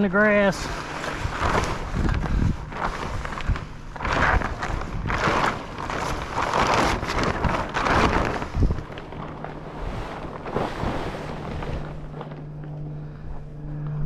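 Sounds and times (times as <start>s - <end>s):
plastic tarp crinkling: 0.0s - 12.8s
steady low hum: 0.0s - 14.0s.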